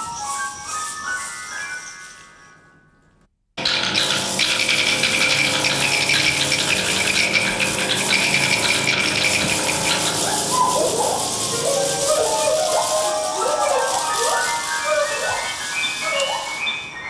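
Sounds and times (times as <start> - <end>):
dense rattling texture: 3.6 - 16.0
wavering pitched sound: 9.2 - 17.0.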